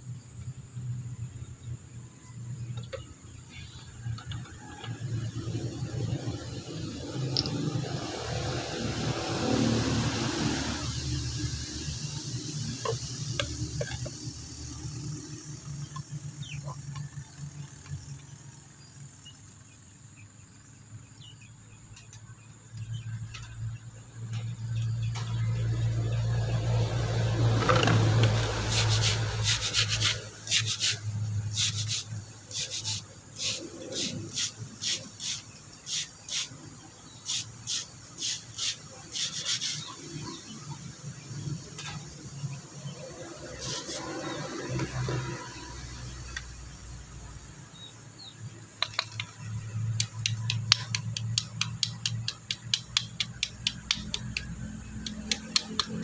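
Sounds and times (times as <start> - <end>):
brush scrubbing wet stone: 28.6 - 31.0, 31.6 - 36.4, 37.7 - 39.9.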